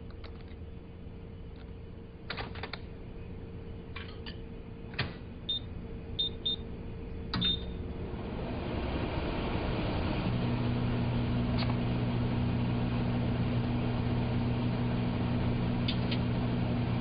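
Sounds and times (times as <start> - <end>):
faint steady hum: 0.0 - 17.0
microwave door and control clicks: 4.0 - 5.2
short high keypad beeps: 7.4 - 7.7.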